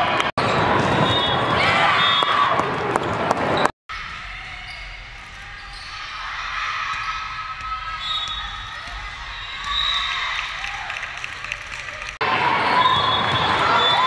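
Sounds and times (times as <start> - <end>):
echoing hall noise: 0.0 - 14.0
players shouting and cheering: 0.0 - 14.0.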